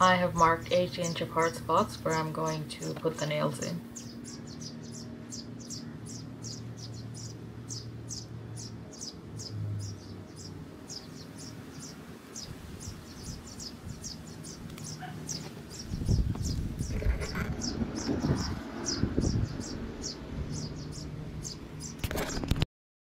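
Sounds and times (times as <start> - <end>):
small bird chirping: 3.9 - 22.1
wind rumbling on microphone: 9.4 - 22.6.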